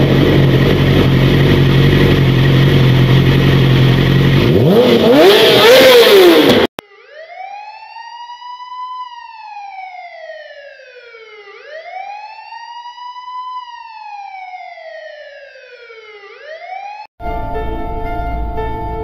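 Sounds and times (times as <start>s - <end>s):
police siren wailing: 6.8s - 19.0s.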